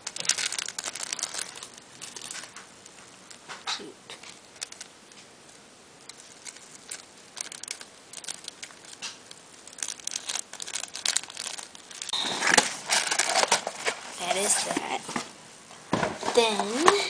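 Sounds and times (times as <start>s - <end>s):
paper bag rustling and crinkling: 0.0s - 2.8s, 6.1s - 15.3s.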